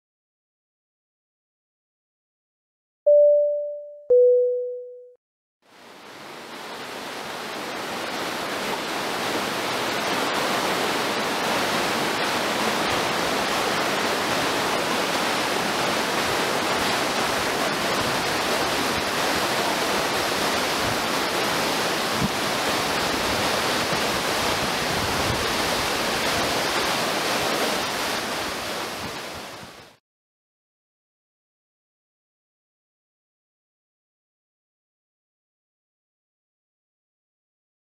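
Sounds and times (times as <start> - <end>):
waterfall rushing: 5.7 - 30.0.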